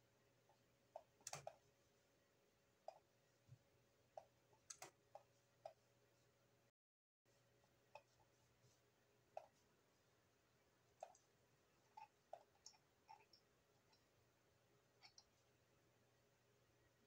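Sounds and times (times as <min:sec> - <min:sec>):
low electrical hum: 0:00.0 - 0:06.7, 0:07.3 - 0:17.0
computer mouse clicks: 0:01.0 - 0:01.6, 0:04.6 - 0:05.0.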